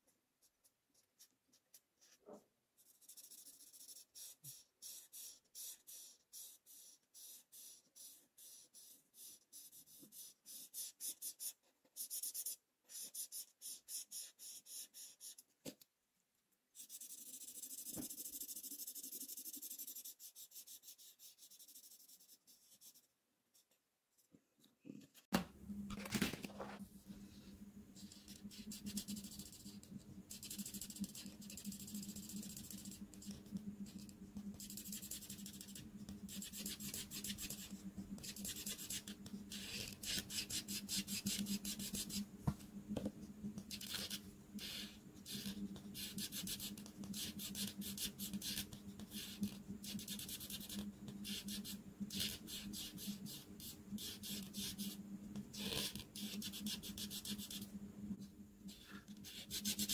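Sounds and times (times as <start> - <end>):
marker scratching on paper: 0.4 - 15.5, 16.8 - 23.1, 28.0 - 42.2, 43.6 - 57.7, 58.7 - 59.9
low steady hum: 24.6 - 59.9.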